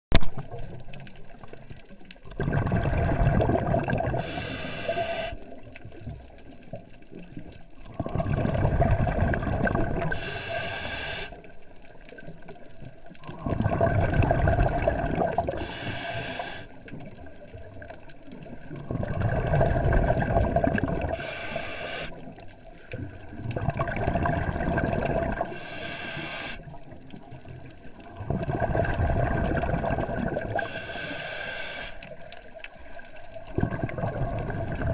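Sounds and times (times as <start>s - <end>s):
exhaled bubbles rumbling underwater: 0.3s - 34.9s
regulator inhale hiss: 4.1s - 5.6s, 10.1s - 11.5s, 15.4s - 16.8s, 21.0s - 22.3s, 25.4s - 26.8s, 30.5s - 32.2s.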